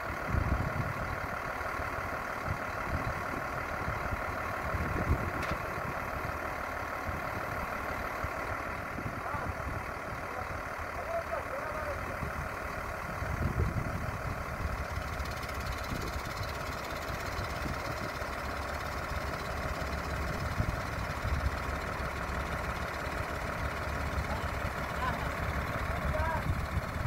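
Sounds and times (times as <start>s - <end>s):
diesel engine idling: 0.0s - 27.0s.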